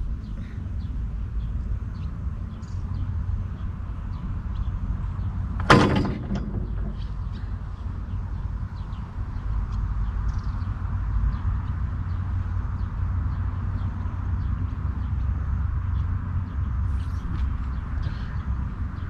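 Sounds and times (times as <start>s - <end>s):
steady low rumble: 0.0s - 19.0s
exercise machine pivot creaking: 5.6s - 7.6s.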